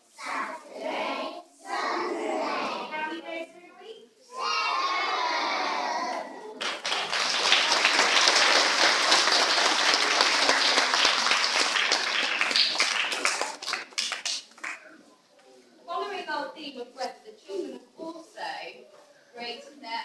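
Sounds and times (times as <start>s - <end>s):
young children's voices: 4.2s - 6.6s
room of people applauding: 6.5s - 14.9s.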